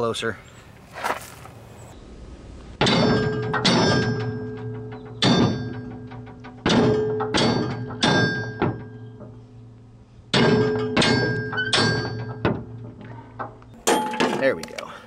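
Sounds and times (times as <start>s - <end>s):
hammer striking steel: 2.8s - 9.4s, 10.3s - 12.7s, 13.8s - 14.7s.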